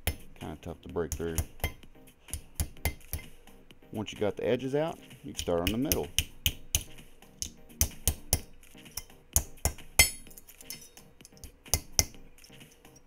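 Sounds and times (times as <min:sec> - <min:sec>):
faint background music: 0:00.0 - 0:13.0
metal bottle cap clicks and clinks: 0:10.0 - 0:13.0.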